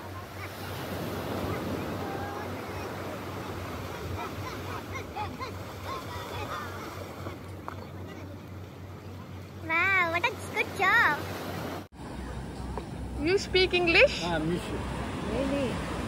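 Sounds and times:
surf breaking on a beach: 0.0 - 12.3.

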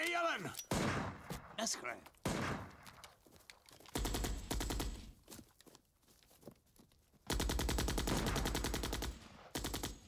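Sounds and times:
rapid automatic gunfire: 4.0 - 5.1, 7.3 - 10.0.

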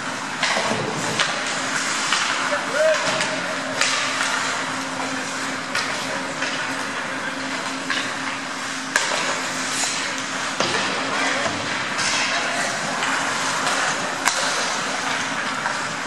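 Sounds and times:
skates scraping ice: 0.7 - 16.0
stick hitting puck clicks: 13.0 - 15.8.

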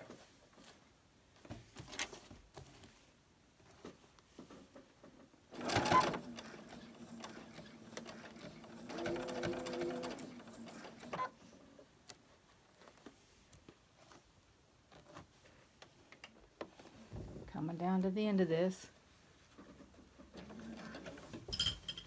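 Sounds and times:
sewing machine stitching: 5.5 - 11.4.

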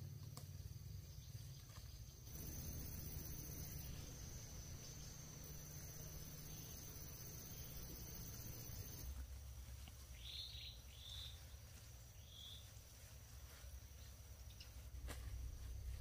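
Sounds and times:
high-pitched insect drone: 2.3 - 9.1.

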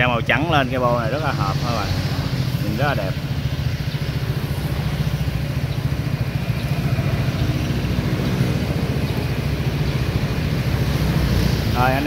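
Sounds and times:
scooter engine idling: 0.0 - 12.0.

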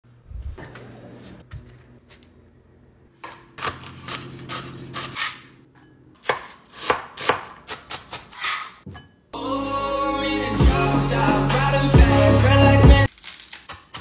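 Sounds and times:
knife chopping on cutting board: 6.2 - 8.7.

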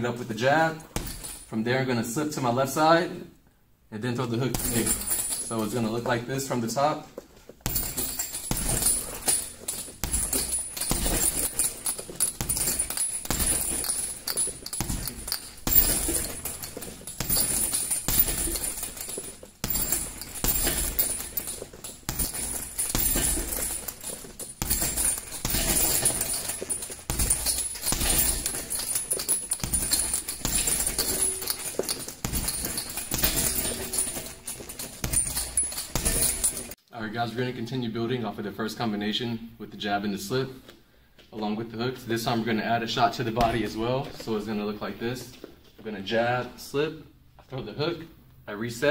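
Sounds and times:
boxing gloves hitting heavy bag: 0.9 - 1.5, 4.5 - 6.0, 7.6 - 36.8
light metallic jingle: 4.6 - 6.1, 7.6 - 36.8.

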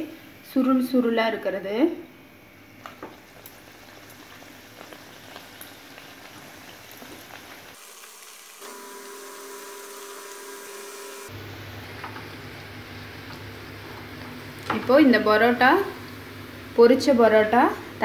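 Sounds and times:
flatbread sizzling in hot oil: 2.9 - 14.7.

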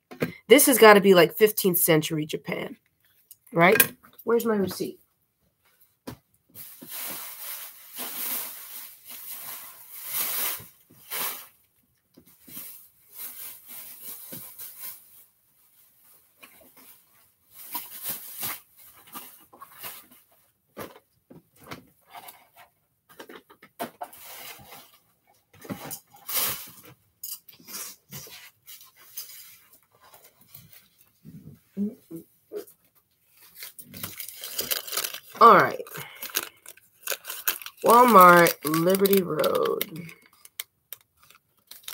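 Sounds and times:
rustling through papers and bags: 5.7 - 11.6, 12.2 - 27.0, 32.7 - 41.9.

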